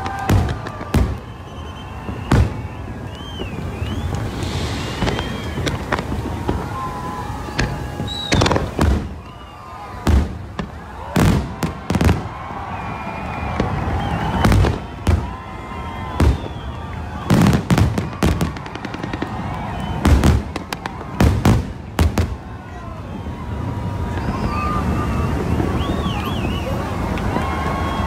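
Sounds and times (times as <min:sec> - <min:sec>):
fireworks bursting: 0:00.0 - 0:28.0
low background rumble: 0:00.2 - 0:16.8.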